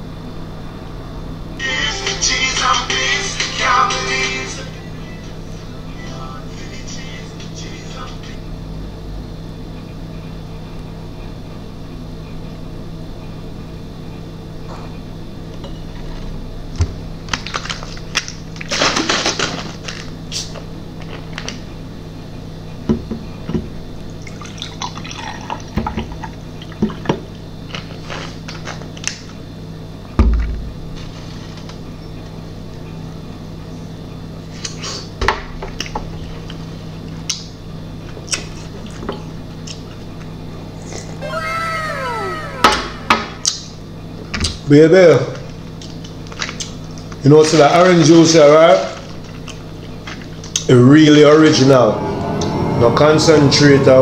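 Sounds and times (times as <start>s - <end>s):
steady low hum: 0.0s - 18.6s, 36.1s - 44.4s, 49.2s - 54.0s
juice pouring into a glass mug: 24.3s - 25.8s.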